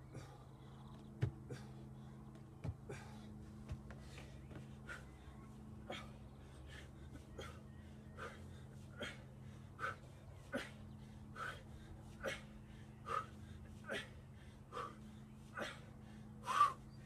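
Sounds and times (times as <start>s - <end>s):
faint steady hum: 0.0s - 17.0s
man breathing hard: 0.0s - 17.0s.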